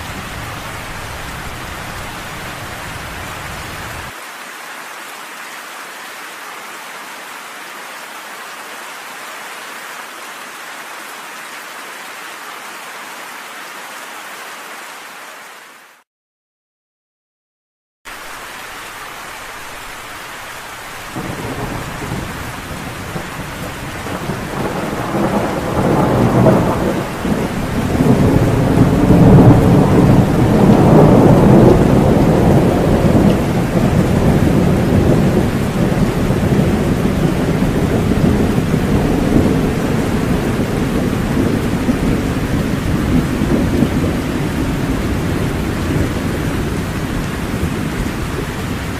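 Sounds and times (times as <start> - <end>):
steady rain: 0.0 - 16.0, 18.1 - 48.9
thunder rolling: 21.0 - 48.9.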